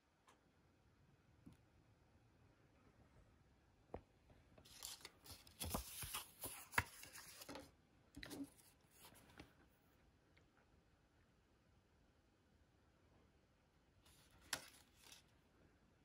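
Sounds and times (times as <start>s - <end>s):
paper rustling and crinkling: 4.6s - 9.5s, 14.1s - 15.3s.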